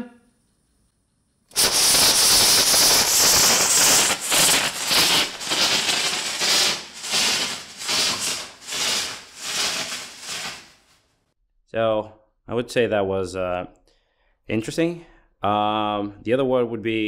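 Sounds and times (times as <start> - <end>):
rocket engine venting steam: 1.5 - 10.9.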